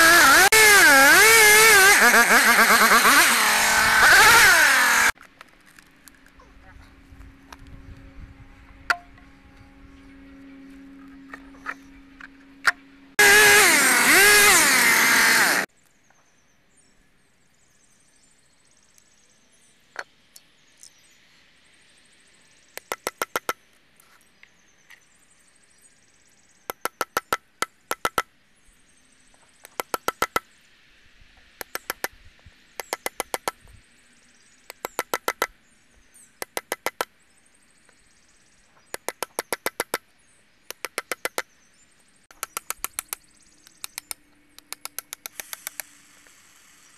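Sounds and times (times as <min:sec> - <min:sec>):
chainsaw revving: 0:00.0 - 0:05.2, 0:13.2 - 0:15.7.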